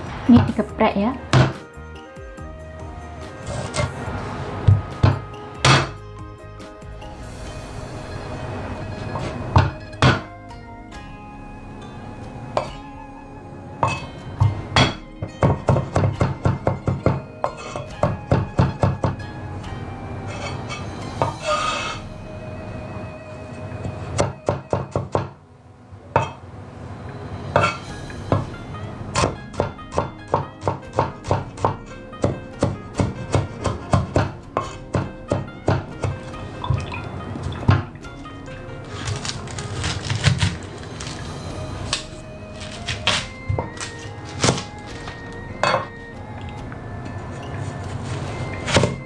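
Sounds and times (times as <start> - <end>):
soft background music: 0.0 - 49.0
cleaver chopping on wooden board: 1.3 - 1.6, 29.2 - 36.2.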